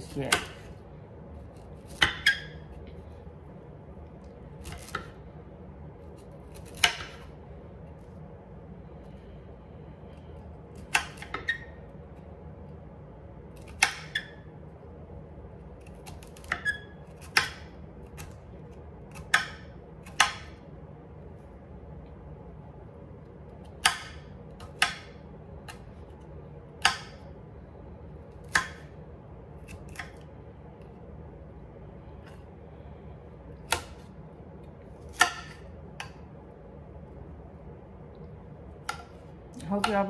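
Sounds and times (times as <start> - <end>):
steady low hum: 0.0 - 40.0
knife chopping on cutting board: 0.2 - 0.7, 1.8 - 2.6, 6.2 - 7.3, 10.8 - 11.6, 13.6 - 14.3, 15.9 - 18.4, 19.1 - 20.6, 23.7 - 25.8, 26.8 - 27.2, 28.4 - 28.9, 35.0 - 36.2.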